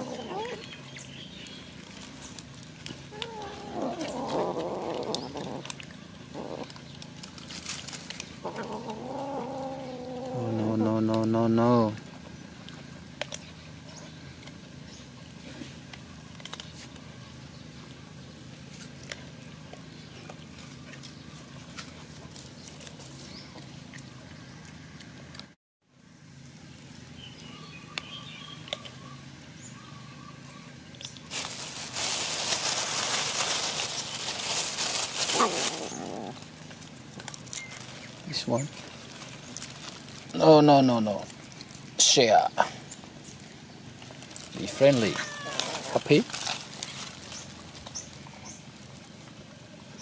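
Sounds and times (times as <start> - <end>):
animals chewing clicks: 0.6 - 8.7, 12.0 - 14.7, 15.8 - 17.2, 27.9 - 29.6
loud rustling hiss: 31.3 - 36.7.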